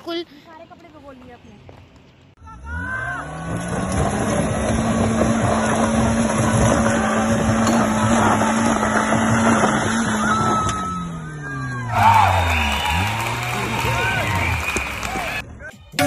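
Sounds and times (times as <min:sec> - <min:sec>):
car engine revving hard: 0:02.7 - 0:11.0, 0:11.9 - 0:15.4.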